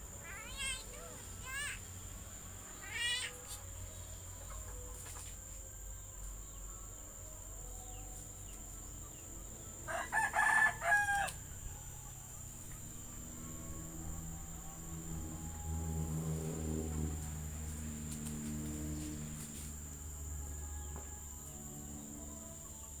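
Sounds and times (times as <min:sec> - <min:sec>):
myna bird calling: 0:02.7 - 0:03.5.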